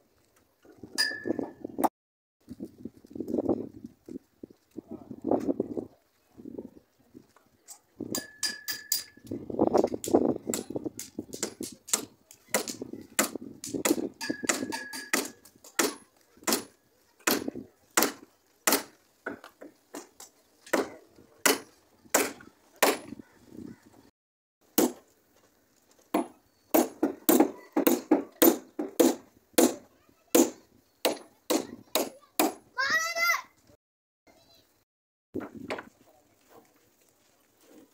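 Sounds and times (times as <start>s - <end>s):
hammer knocking on wooden planks: 26.1s - 29.8s.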